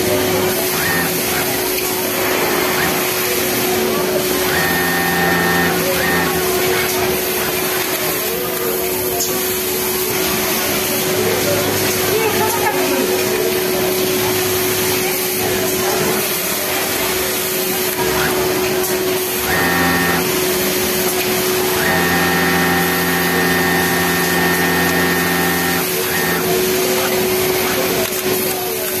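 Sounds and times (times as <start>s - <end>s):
hum from other machines: 0.0s - 7.8s, 19.3s - 27.8s
sewing machine running: 0.0s - 8.9s, 16.2s - 28.6s.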